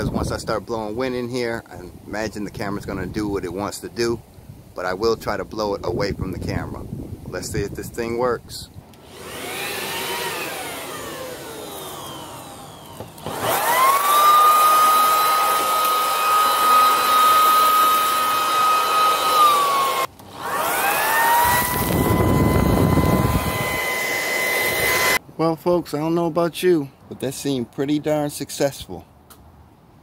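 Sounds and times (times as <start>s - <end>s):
electric leaf blower whine: 8.9s - 25.2s.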